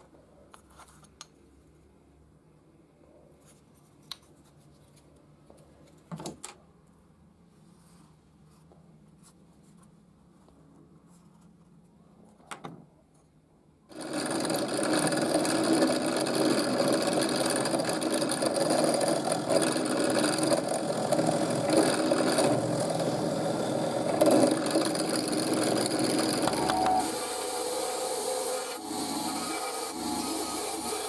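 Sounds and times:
drill press boring through steel: 0:13.9 - 0:31.0.

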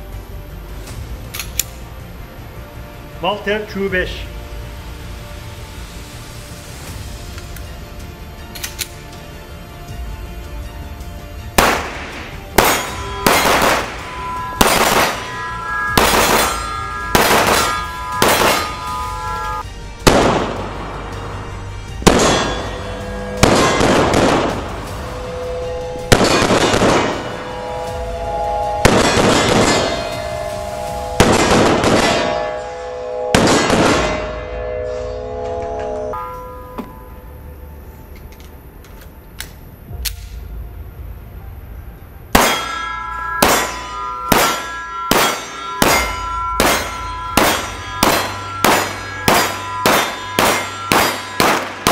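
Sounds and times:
background music: 0:00.0 - 0:51.9
pistol shots echoing indoors: 0:11.6 - 0:13.9, 0:43.4 - 0:43.7, 0:44.3 - 0:51.9.

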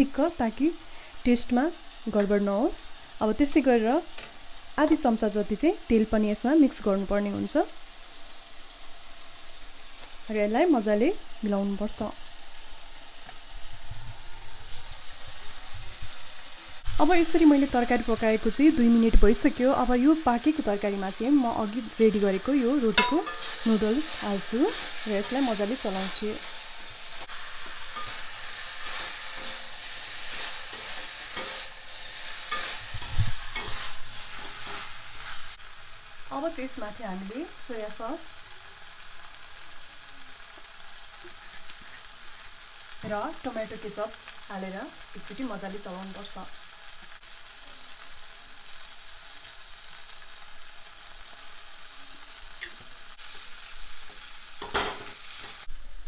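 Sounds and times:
food sizzling in a pan: 0:00.0 - 0:56.0
metal spoon scraping a pan: 0:22.8 - 0:26.7, 0:27.5 - 0:35.6.

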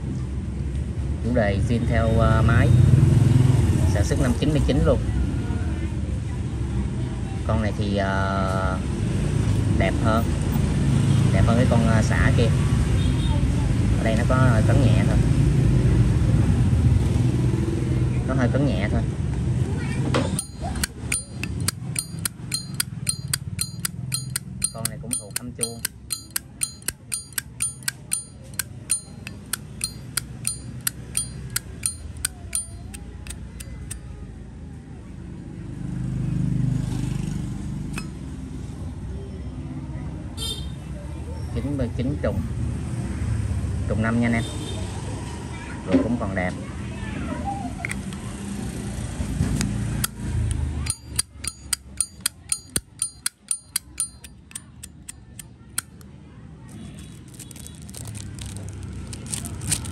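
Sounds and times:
lighter lid clicking with metallic ring: 0:20.4 - 0:34.0, 0:50.8 - 0:56.0.

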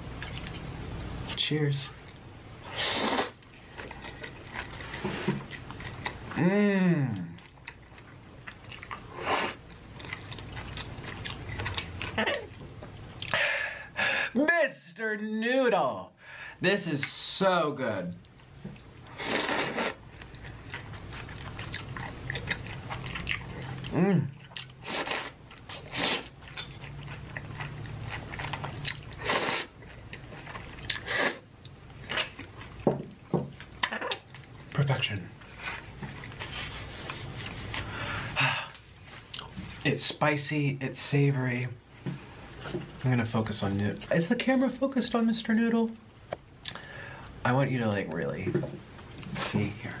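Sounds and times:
low steady hum: 0:00.0 - 0:50.0
wet chewing: 0:00.2 - 0:00.7, 0:03.0 - 0:06.4, 0:07.2 - 0:13.4, 0:18.2 - 0:32.9
noodle slurp: 0:02.7 - 0:03.4, 0:19.1 - 0:20.0, 0:28.5 - 0:29.8
person slurping noodles: 0:02.7 - 0:03.4, 0:19.1 - 0:20.0, 0:24.8 - 0:26.3, 0:29.1 - 0:29.8, 0:30.9 - 0:31.4.

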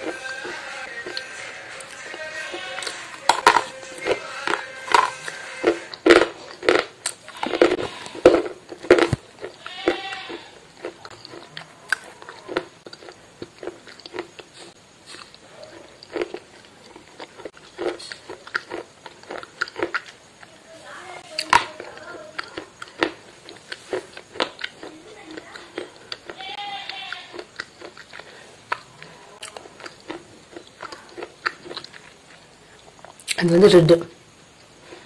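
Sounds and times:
person chewing crunchy food: 0:00.0 - 0:20.5, 0:21.2 - 0:33.4.

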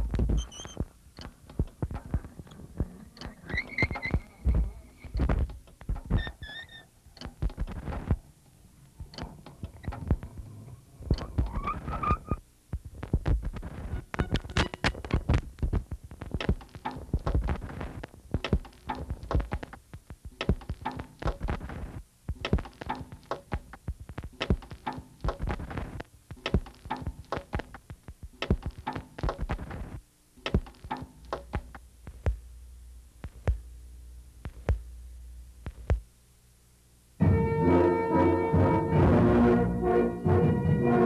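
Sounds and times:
knocks and low thumps: 0:00.0 - 0:00.9, 0:31.4 - 0:32.5, 0:33.2 - 0:33.7, 0:34.4 - 0:34.9, 0:35.6 - 0:36.1
brief pitched squeaks: 0:00.4 - 0:00.8, 0:03.4 - 0:04.4, 0:06.2 - 0:06.9.

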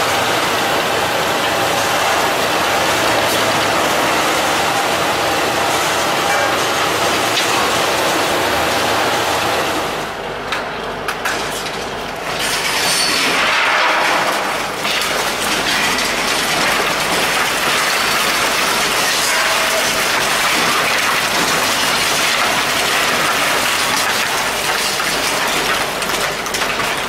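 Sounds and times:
rubble rattling and pouring: 0:12.4 - 0:27.0.

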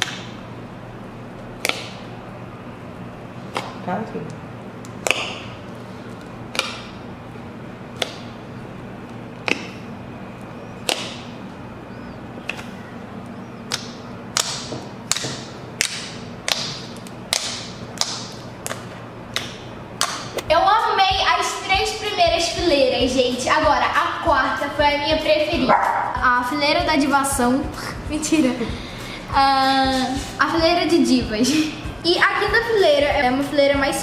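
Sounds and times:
slime clicking pops: 0:01.6 - 0:02.0, 0:10.8 - 0:11.2.

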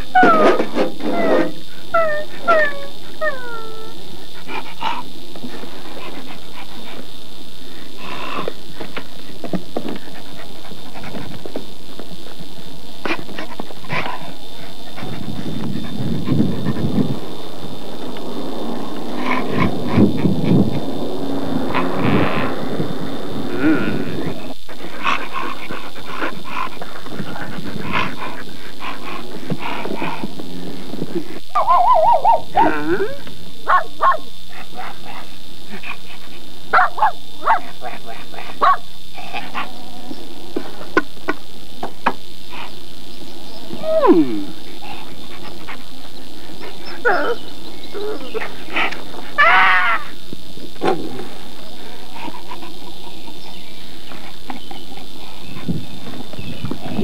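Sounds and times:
dog whining: 0:00.0 - 0:05.1, 0:31.5 - 0:34.2, 0:43.6 - 0:45.3, 0:46.6 - 0:50.2
dog panting and snuffling: 0:04.3 - 0:17.4, 0:24.7 - 0:31.4.

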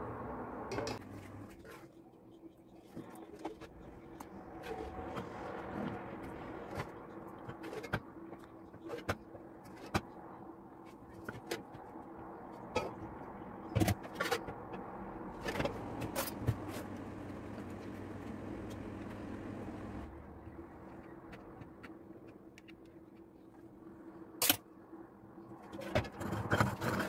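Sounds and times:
steady low hum: 0:14.5 - 0:22.3.

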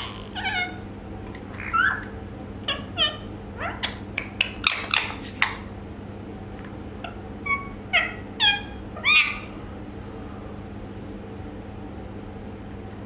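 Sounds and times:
parakeet calls and chirps: 0:00.0 - 0:05.7, 0:07.0 - 0:09.6
parakeet high squeak: 0:01.6 - 0:02.1, 0:02.7 - 0:05.6, 0:07.5 - 0:09.5
parakeet sharp clicks: 0:04.1 - 0:05.6.

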